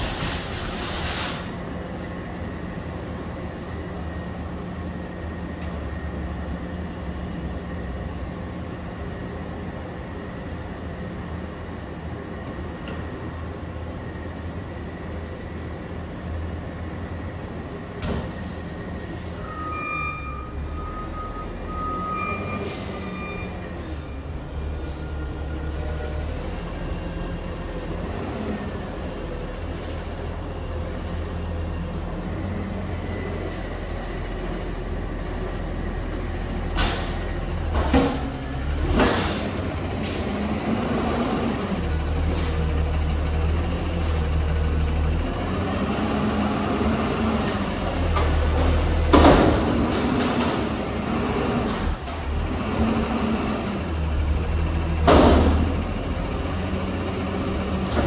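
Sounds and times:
garbage truck engine revving: 34.2 - 58.0.

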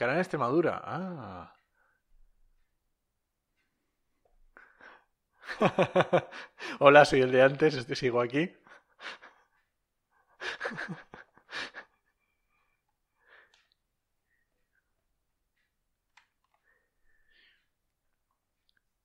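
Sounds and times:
faint clicks and mouth noises: 17.6 - 19.0.

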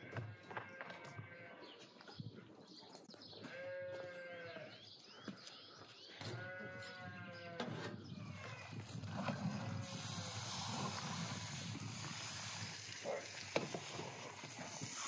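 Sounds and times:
small birds chirping: 0.5 - 15.0
sheep bleating: 3.4 - 4.8.

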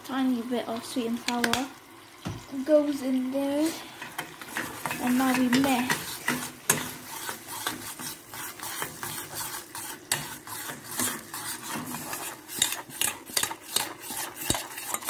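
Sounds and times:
metal spoon scraping saucepan: 4.0 - 15.0.

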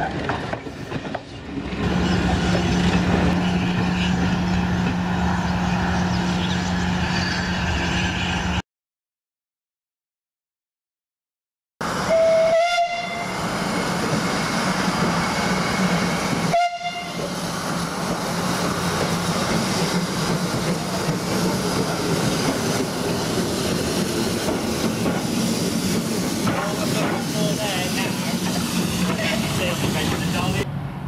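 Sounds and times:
steam whistle: 12.1 - 13.3, 16.5 - 17.2.

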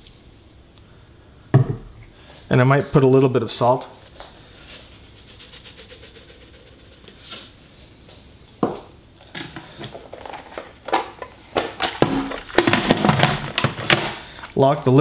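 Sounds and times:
salt shaker rattling: 4.6 - 7.6.

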